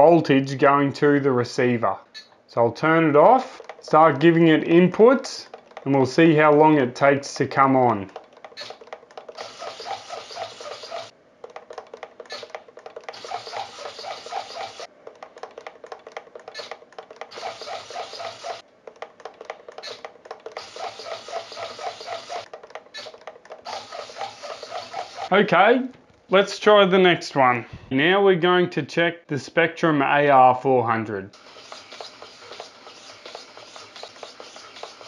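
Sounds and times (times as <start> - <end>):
servos whirring: 2.9 - 18.6, 19.2 - 25.3, 31.3 - 35.0.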